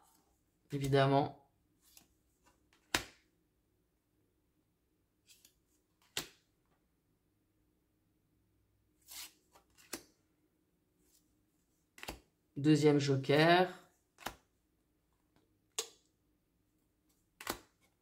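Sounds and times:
cards swishing and snapping: 1.8 - 3.2, 5.3 - 6.5, 9.0 - 10.2, 11.9 - 12.3, 14.1 - 14.5, 17.2 - 18.0.

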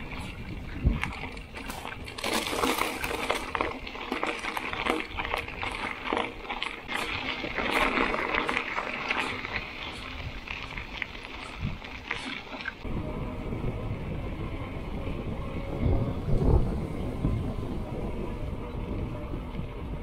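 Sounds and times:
bike tyres crunching on gravel: 0.0 - 12.9.

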